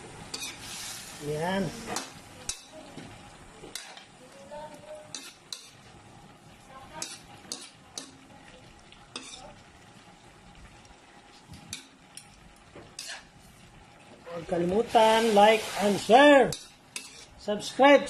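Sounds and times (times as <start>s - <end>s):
faint sizzle: 0.0s - 18.0s
spatula scraping a wok: 0.2s - 2.8s, 3.7s - 4.1s, 5.0s - 6.0s, 6.9s - 8.2s, 9.1s - 9.6s, 12.9s - 13.6s, 14.6s - 17.4s.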